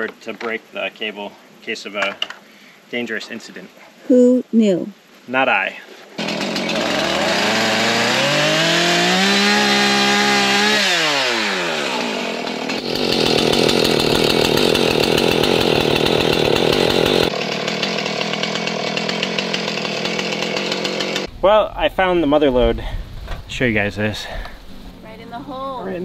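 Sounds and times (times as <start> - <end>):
chainsaw revving and cutting branches: 6.2 - 21.3.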